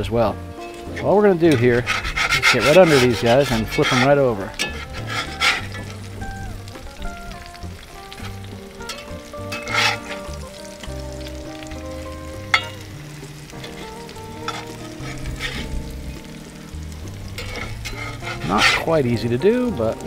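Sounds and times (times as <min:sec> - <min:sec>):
oil sizzling in a skillet: 0:00.0 - 0:20.0
metal spatula scraping: 0:00.6 - 0:06.6, 0:07.8 - 0:19.5
sharp metal clank: 0:08.9 - 0:10.2, 0:12.5 - 0:12.9.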